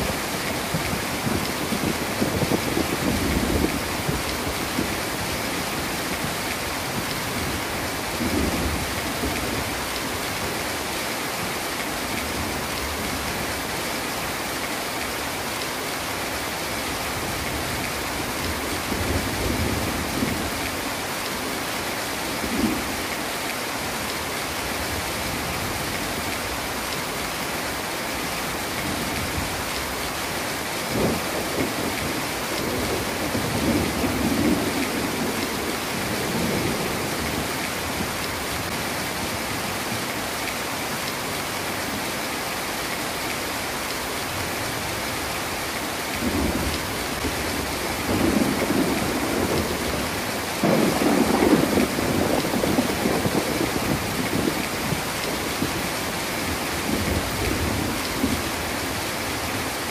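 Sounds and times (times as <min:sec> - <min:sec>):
heavy rain falling: 0:00.0 - 0:59.9
thunder rumbling: 0:46.2 - 0:55.9.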